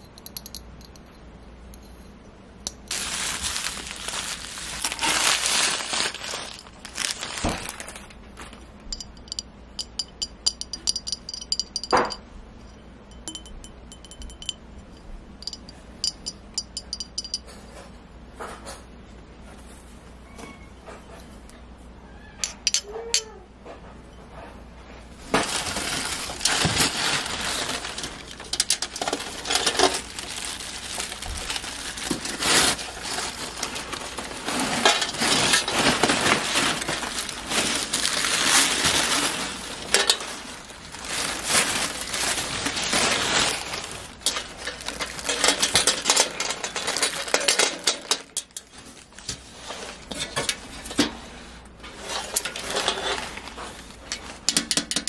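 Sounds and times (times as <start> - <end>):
packing paper rustling: 2.8 - 8.7, 25.2 - 50.8, 52.0 - 54.5
light clinks of glass: 8.9 - 14.6.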